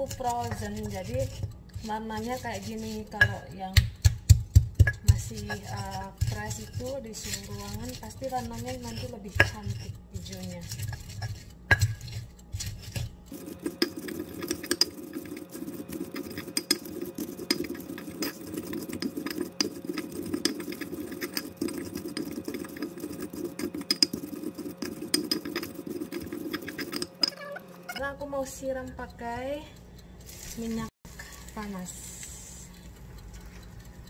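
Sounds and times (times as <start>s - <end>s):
stone pestle knocking: 0.0s - 12.2s, 13.3s - 27.4s
stone grinding on stone: 0.0s - 29.2s.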